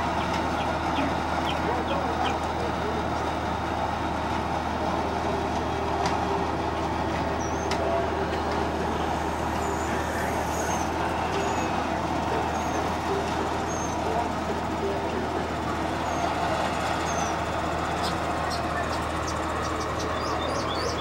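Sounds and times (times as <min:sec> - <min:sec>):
bus engine running: 0:00.0 - 0:21.0.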